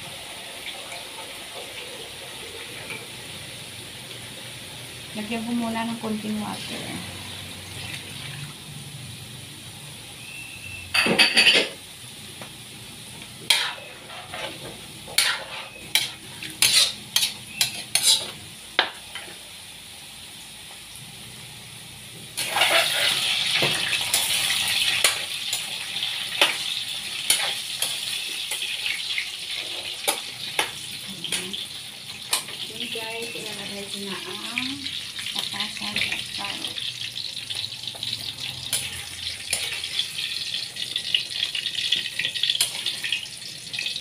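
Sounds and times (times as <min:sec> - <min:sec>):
sizzling in hot pan: 0:00.0 - 0:44.0
metal spatula scraping wok: 0:13.5 - 0:18.4, 0:22.4 - 0:28.7, 0:38.4 - 0:40.4.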